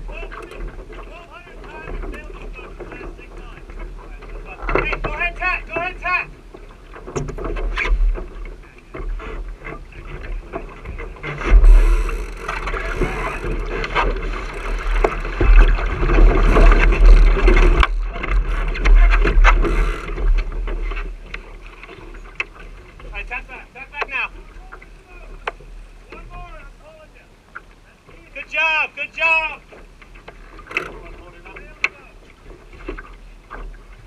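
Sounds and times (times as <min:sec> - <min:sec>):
knocks of hull and fittings: 0:00.0 - 0:26.7, 0:29.2 - 0:34.0
water splashing along hull: 0:00.0 - 0:34.0.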